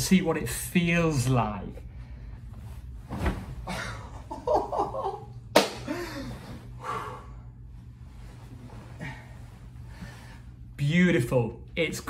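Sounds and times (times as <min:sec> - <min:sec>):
body smacking onto mattress: 0:03.0 - 0:03.9
man laughing: 0:03.7 - 0:06.3.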